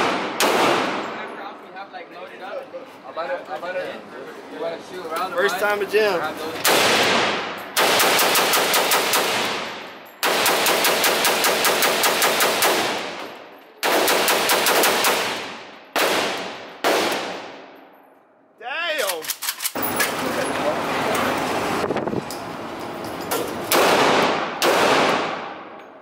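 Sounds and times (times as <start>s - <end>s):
rifle gunshots echoing indoors: 0.0s - 1.2s, 6.6s - 13.2s, 13.8s - 17.8s, 23.7s - 25.8s.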